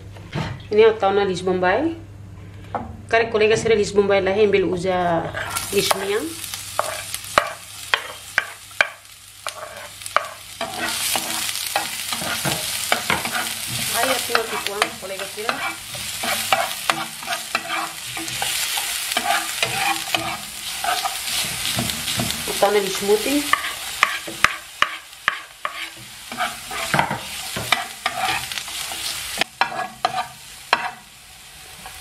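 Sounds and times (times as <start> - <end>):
spatula scraping pan: 5.3 - 6.2, 6.8 - 22.6, 23.4 - 31.0
onion sizzling in oil: 5.3 - 32.0
spoon knocking on pan: 23.5 - 28.2.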